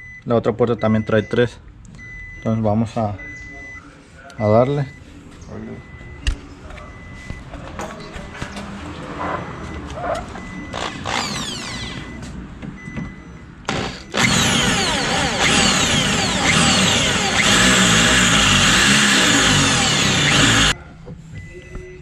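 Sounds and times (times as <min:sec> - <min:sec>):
electric drill drilling metal: 0:10.8 - 0:12.0, 0:13.7 - 0:20.7.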